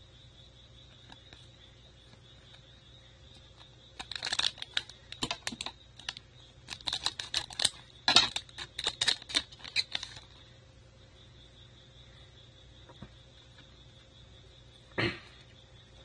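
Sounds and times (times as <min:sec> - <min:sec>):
trading cards shuffling: 0:04.0 - 0:10.3
faint high whine: 0:07.6 - 0:16.0.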